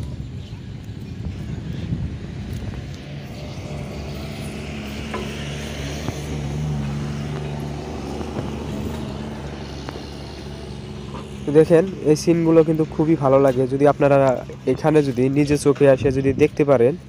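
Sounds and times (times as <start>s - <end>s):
heavy engine droning: 2.9s - 15.8s.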